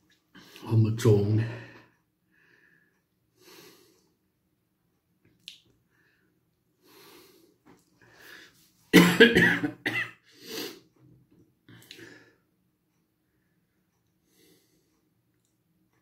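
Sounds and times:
soft breaths: 1.4s - 4.4s, 5.8s - 8.9s, 10.3s - 16.0s
man coughing: 8.9s - 10.2s.

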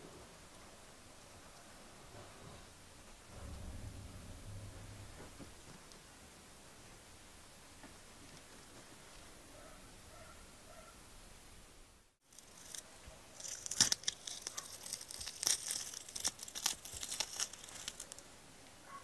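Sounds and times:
rubber mould crackling and tearing: 12.3s - 18.3s.

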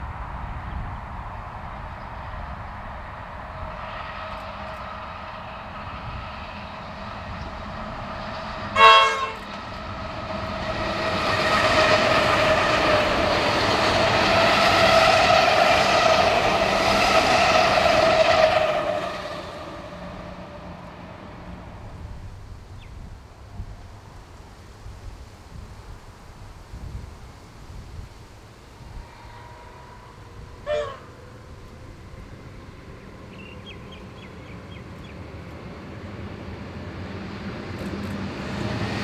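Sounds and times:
electric train passing on rails: 0.0s - 39.0s
steady train whine: 0.0s - 39.0s
train horn blast: 3.7s - 21.0s, 28.6s - 34.6s.

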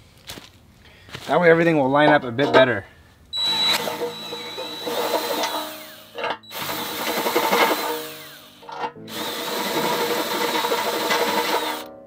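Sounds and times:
cordless drill boring metal: 3.4s - 11.9s.

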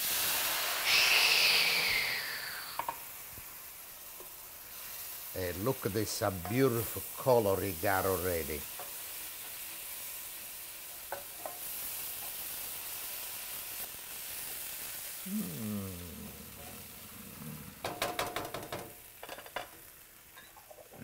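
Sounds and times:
sauce sizzling in a pan: 0.0s - 21.0s
person humming: 0.9s - 2.9s, 15.2s - 18.4s.

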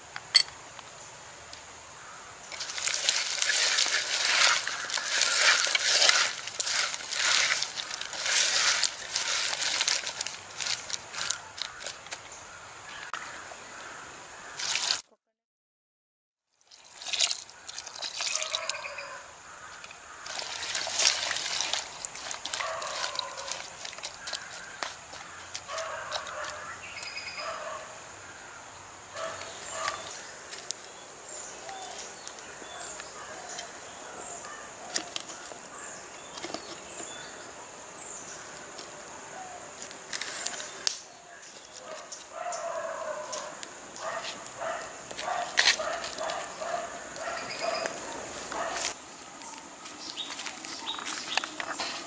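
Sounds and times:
liquid pouring: 2.5s - 10.8s, 16.6s - 18.8s
hard seeds clattering in pot: 2.5s - 12.2s, 16.7s - 18.8s, 19.8s - 26.6s
wet squelching clatter: 2.5s - 12.2s, 16.7s - 18.9s, 19.8s - 26.6s.

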